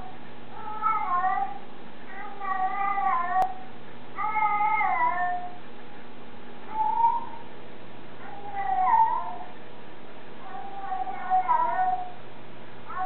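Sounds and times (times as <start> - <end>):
cat meowing: 0.6 - 3.6, 8.2 - 9.5, 10.4 - 12.2.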